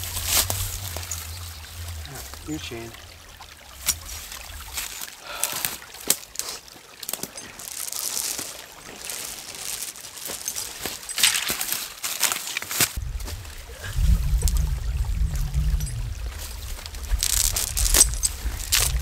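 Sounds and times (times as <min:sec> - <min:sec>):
footsteps crunching dry leaves: 0:00.0 - 0:02.5, 0:06.4 - 0:13.0, 0:16.3 - 0:19.0
twigs snapping: 0:00.0 - 0:02.5, 0:03.7 - 0:13.0, 0:16.8 - 0:19.0
creek trickling: 0:00.0 - 0:19.0.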